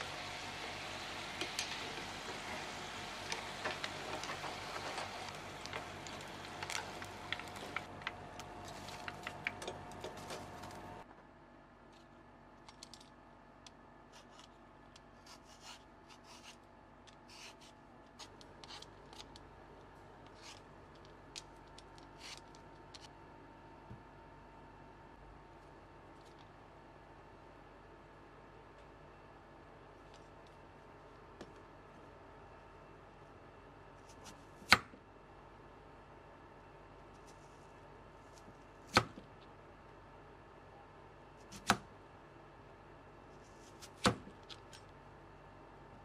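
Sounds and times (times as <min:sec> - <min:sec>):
hot oil sizzling and crackling: 0:00.0 - 0:07.9
peeler scraping potato: 0:15.2 - 0:16.6.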